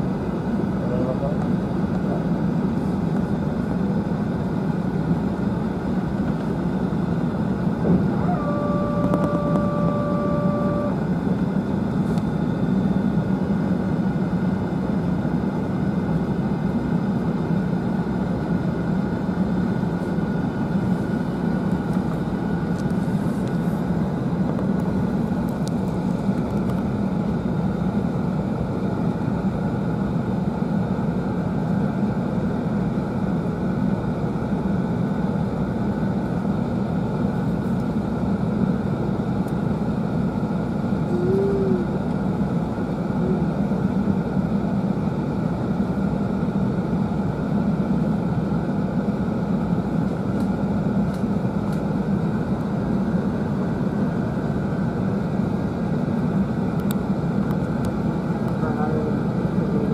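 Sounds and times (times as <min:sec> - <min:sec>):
airplane cabin rumble: 0:00.0 - 0:59.9
steady tone: 0:07.8 - 0:11.1.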